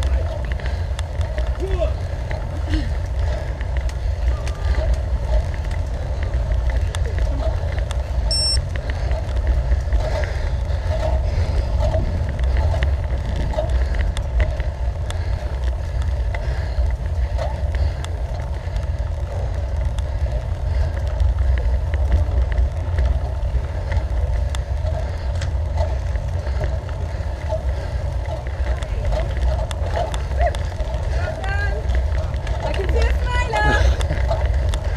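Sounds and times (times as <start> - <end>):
road noise: 0.0 - 34.9
wind buffeting microphone: 0.0 - 34.9
short high beep: 8.3 - 8.6.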